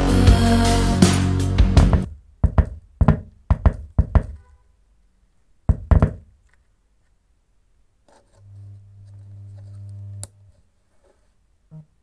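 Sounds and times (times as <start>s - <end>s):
music through subwoofer: 0.0s - 2.2s.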